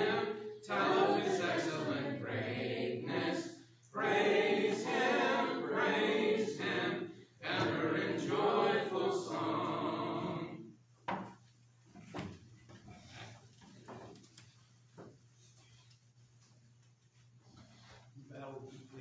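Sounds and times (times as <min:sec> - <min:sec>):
congregation singing a hymn: 0:00.0 - 0:10.8
knocks and thumps: 0:11.0 - 0:11.4.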